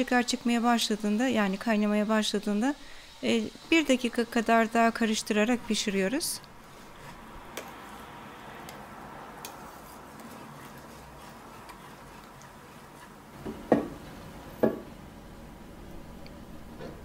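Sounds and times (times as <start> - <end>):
whisk scraping in pot: 6.6 - 13.8.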